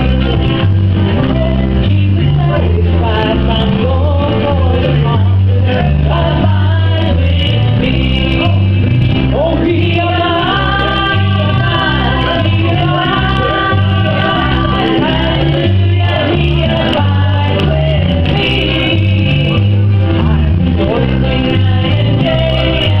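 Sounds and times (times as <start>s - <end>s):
instrumental accompaniment with bass: 0.0s - 23.0s
women singing a hymn: 9.4s - 23.0s.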